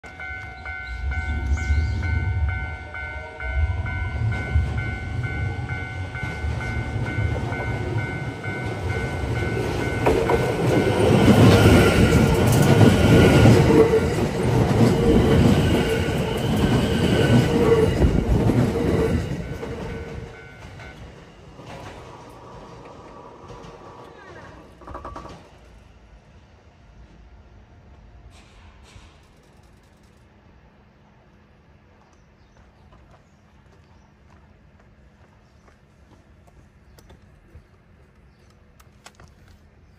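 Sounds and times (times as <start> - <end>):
level crossing alarm ringing: 0.0 - 13.8
train wheels rumbling on rails: 0.0 - 39.9.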